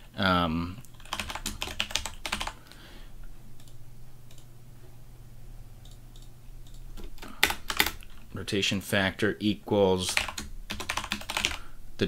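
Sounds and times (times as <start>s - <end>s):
steady low hum: 0.0s - 12.0s
typing on a keyboard: 0.9s - 2.6s, 5.9s - 8.1s, 10.1s - 11.6s.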